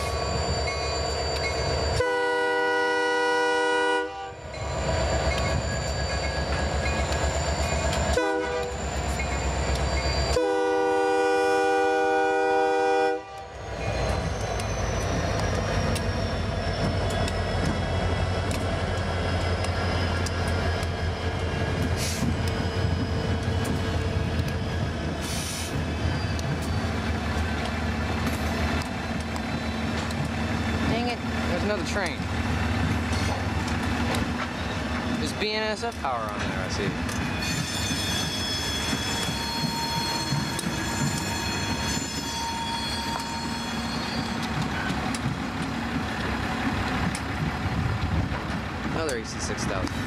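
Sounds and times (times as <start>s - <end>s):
low rumble of locomotives passing: 0.0s - 50.0s
locomotive air horn blasts: 2.0s - 4.4s, 8.1s - 8.8s, 10.3s - 13.5s.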